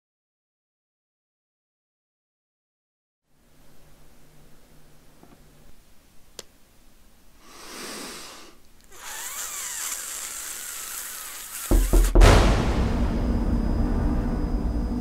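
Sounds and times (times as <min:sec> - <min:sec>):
perfume atomizer spraying: 0:08.9 - 0:12.2.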